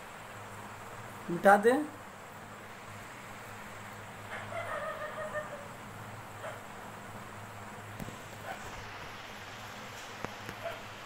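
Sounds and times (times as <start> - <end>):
faint wavering animal call: 4.3 - 5.8.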